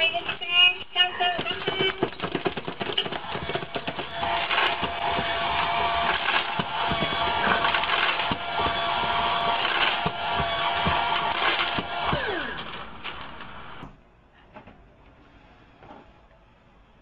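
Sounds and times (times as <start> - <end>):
rattling and clicking: 1.2 - 13.6
pet feeder mechanical whir: 2.7 - 14.0.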